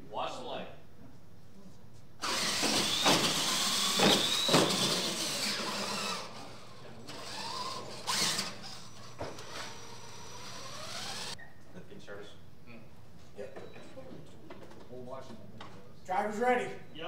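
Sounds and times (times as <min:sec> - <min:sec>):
toy truck motors whining: 0:02.2 - 0:11.4.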